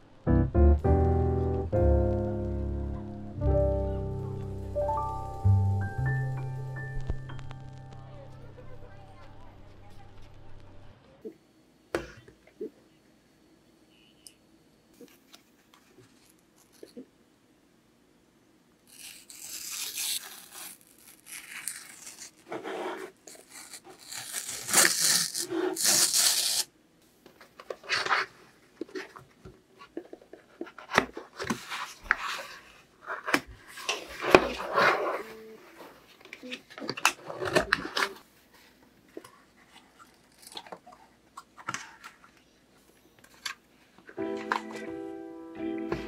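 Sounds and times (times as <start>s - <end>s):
cardboard box ripping: 18.9s - 26.7s.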